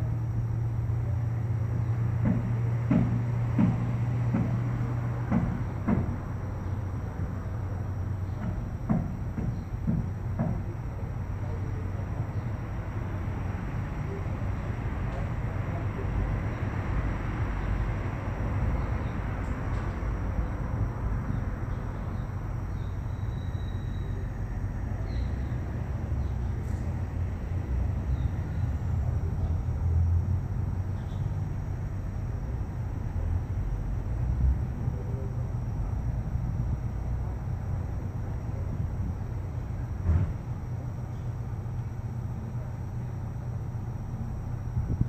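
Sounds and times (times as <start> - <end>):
low rumble and hiss: 0.0 - 45.0
faint short high chirps: 22.8 - 24.3.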